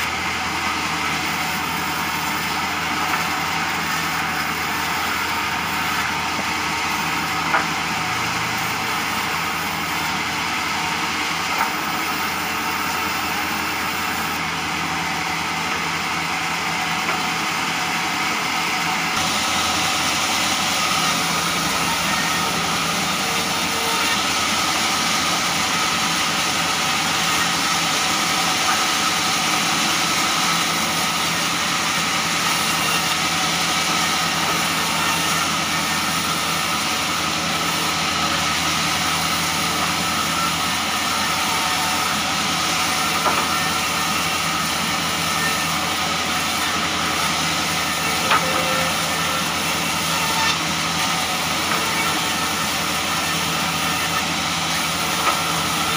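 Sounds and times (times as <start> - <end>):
band saw cutting boards: 0.0 - 55.9.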